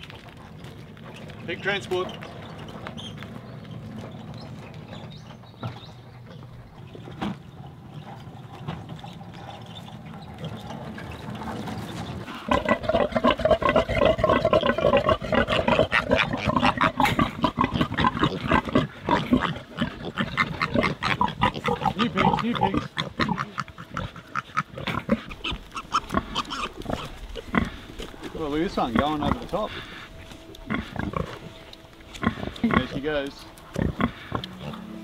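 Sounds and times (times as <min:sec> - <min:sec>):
pigs grunting: 0:05.6 - 0:35.0
low rumble: 0:25.2 - 0:35.0.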